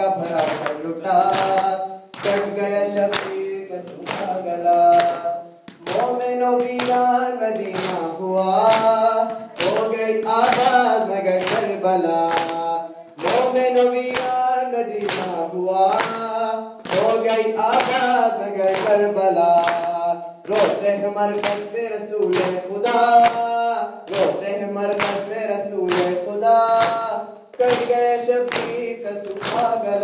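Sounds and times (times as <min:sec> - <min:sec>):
rhythmic chest slapping: 0:00.0 - 0:30.0
voices singing a lament in unison: 0:00.0 - 0:30.0.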